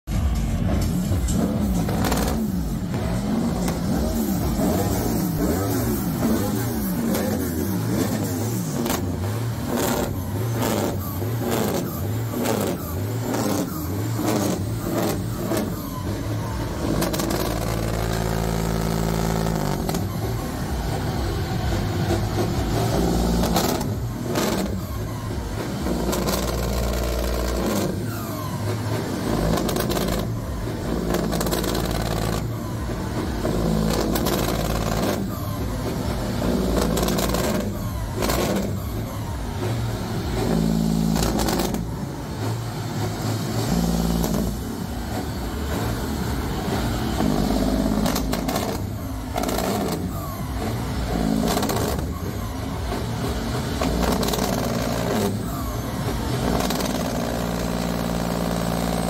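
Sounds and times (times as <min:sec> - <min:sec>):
diesel truck engine revving: 0:00.0 - 0:59.0
exhaust pops and bangs: 0:00.1 - 0:59.0.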